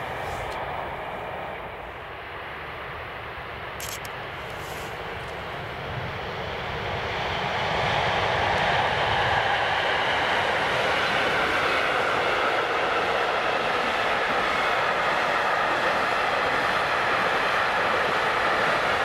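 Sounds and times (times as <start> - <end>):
train passing at speed: 0.0 - 19.0.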